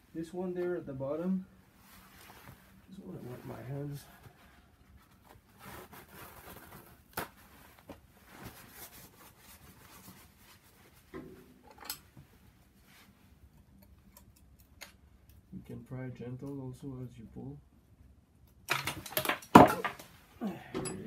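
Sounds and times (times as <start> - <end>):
rag and clothing rustling: 1.7 - 13.4.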